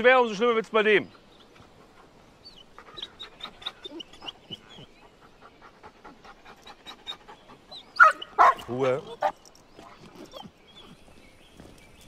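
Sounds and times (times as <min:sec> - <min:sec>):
dog panting: 0:01.6 - 0:11.0
dog whining squeaks: 0:02.9 - 0:04.8.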